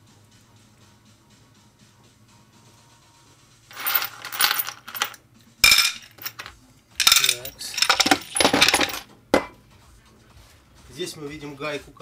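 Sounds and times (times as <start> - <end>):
metal tools clinking on workbench: 3.7 - 9.5
ringing metal clatter: 3.8 - 9.0.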